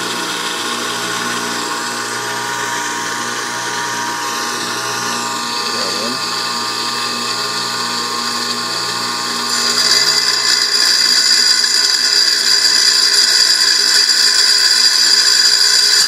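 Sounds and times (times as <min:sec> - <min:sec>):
bench saw whining: 0:00.0 - 0:16.0
saw blade grinding glass: 0:05.3 - 0:06.3, 0:09.4 - 0:16.0.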